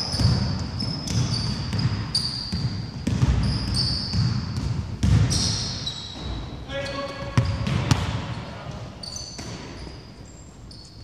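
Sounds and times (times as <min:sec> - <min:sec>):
basketball dribbling thuds: 0:00.0 - 0:06.6, 0:07.3 - 0:08.8
sneakers squeaking on wooden floor: 0:00.0 - 0:11.0.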